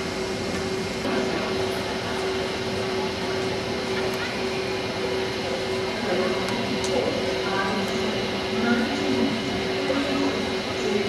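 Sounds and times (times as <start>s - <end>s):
constant droning tone: 0.0s - 11.0s
trains rumbling in station hall: 0.0s - 11.0s.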